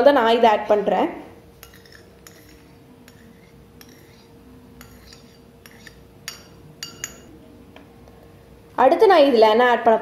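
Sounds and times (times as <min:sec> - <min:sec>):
spoon scraping a plate: 0:01.5 - 0:07.3.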